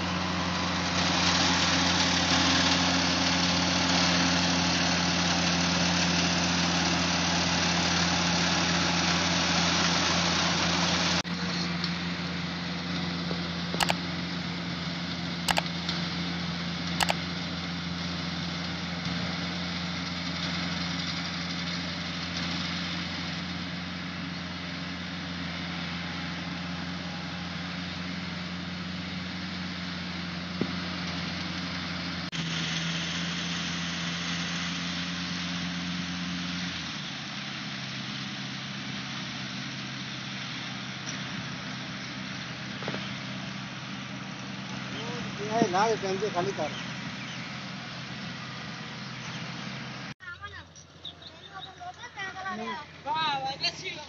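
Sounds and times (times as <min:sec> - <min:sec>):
harvester engines running: 0:00.0 - 0:54.0
sharp clicks: 0:13.8 - 0:14.0, 0:15.5 - 0:16.0, 0:17.0 - 0:17.2.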